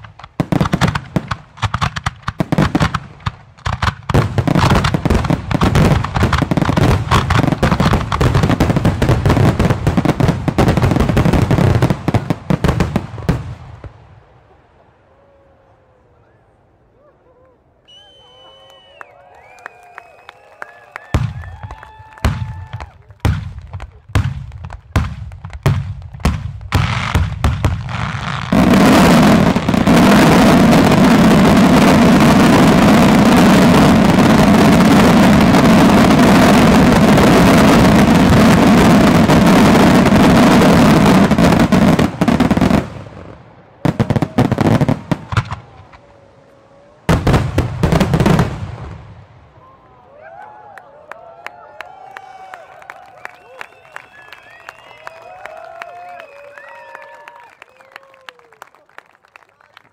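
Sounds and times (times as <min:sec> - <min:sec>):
fireworks bangs: 0:00.0 - 0:14.6, 0:20.9 - 0:46.2, 0:47.0 - 0:49.6
dense volley of fireworks crackle: 0:00.0 - 0:15.7, 0:20.0 - 0:49.7, 0:53.4 - 0:59.9.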